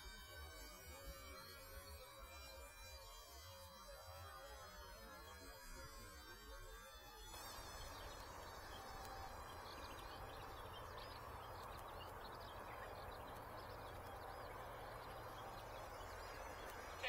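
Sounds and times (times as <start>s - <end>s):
faint high chirps: 7.3s - 17.0s
outdoor background hiss: 7.3s - 17.0s.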